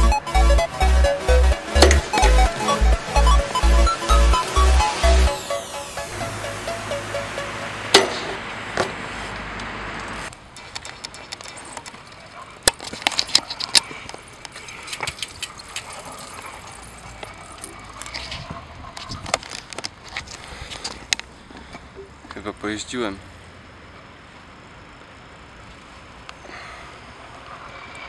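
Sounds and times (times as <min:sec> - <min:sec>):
electronic dance music: 0:00.0 - 0:09.2
open-air ambience: 0:00.0 - 0:28.0
bike clicks and metallic rattling: 0:10.3 - 0:21.8.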